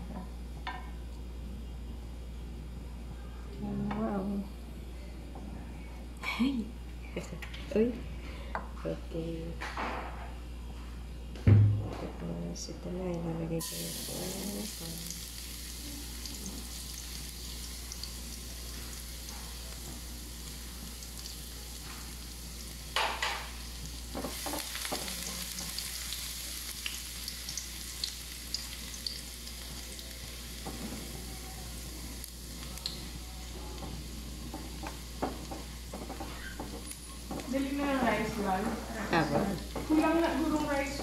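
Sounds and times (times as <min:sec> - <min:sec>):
garlic sizzling in hot oil: 0:13.6 - 0:41.0.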